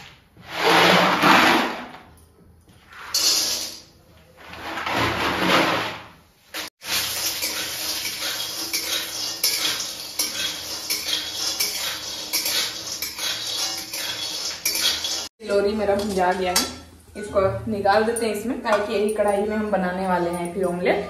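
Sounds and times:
metal spoon scraping a metal pan: 2.9s - 3.9s, 6.6s - 16.9s.

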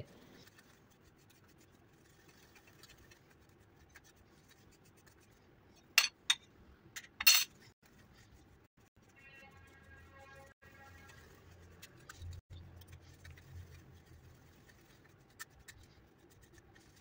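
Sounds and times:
fingertip scratching through sieve: 0.2s - 5.9s, 10.8s - 17.0s.

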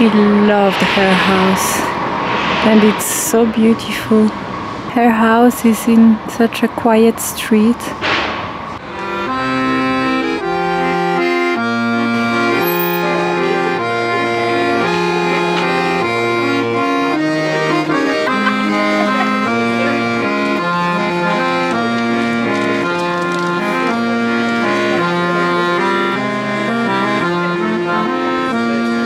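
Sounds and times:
accordion music: 8.8s - 29.0s.

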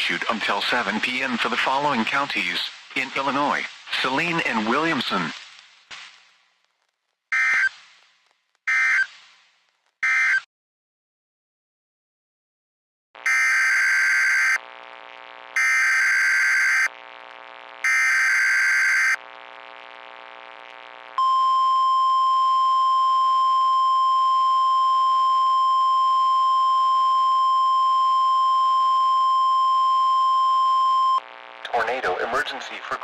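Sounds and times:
steady warning alarm tone: 8.7s - 9.1s, 13.3s - 14.6s, 15.6s - 16.9s, 17.9s - 19.2s.

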